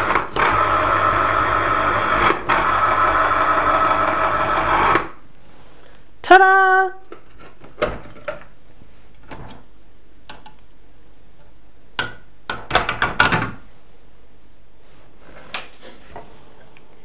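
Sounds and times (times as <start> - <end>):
plastic parts clicking and knocking: 10.3 - 10.6.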